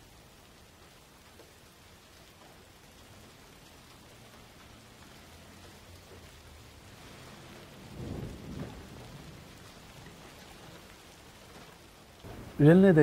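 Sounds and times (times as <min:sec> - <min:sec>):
rain hiss: 0:00.0 - 0:13.0
thunder rumble: 0:05.0 - 0:13.0.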